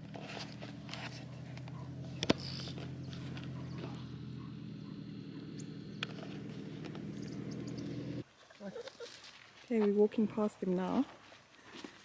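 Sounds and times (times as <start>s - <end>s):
steady low hum: 0.0s - 8.2s.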